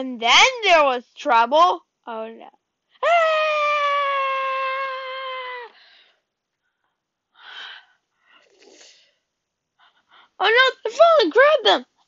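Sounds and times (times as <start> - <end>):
child screaming: 3.0 - 5.7.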